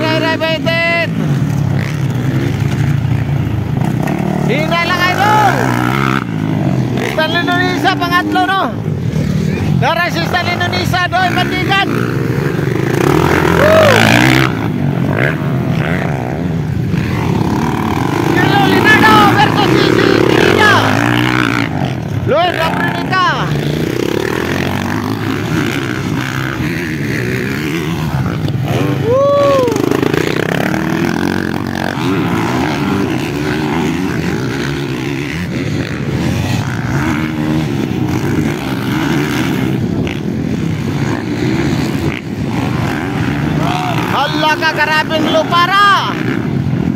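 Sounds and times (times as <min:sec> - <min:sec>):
dirt bike engines revving: 0:00.0 - 0:46.9
person shouting woo: 0:13.5 - 0:14.1, 0:29.0 - 0:29.9.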